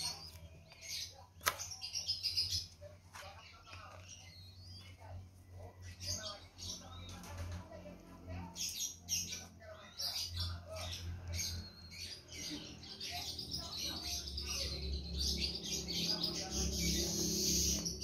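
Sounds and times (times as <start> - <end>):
young doves squeaky calls: 8.5 - 18.0.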